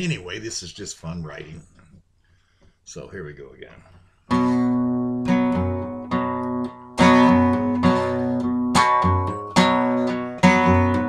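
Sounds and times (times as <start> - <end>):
acoustic guitar strumming: 4.3 - 11.0.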